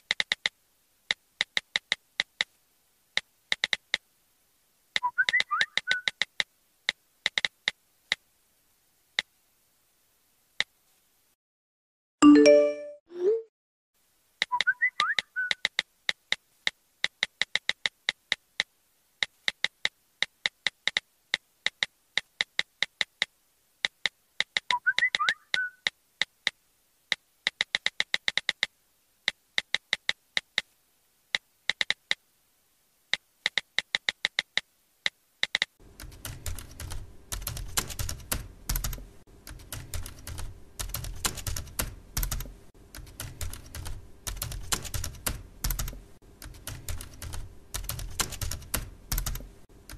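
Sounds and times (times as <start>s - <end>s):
keyboard typing clicks: 0.1s - 0.5s, 3.2s - 4.0s, 5.0s - 7.8s, 14.4s - 18.4s, 19.4s - 25.4s, 31.7s - 32.2s, 35.4s - 49.9s.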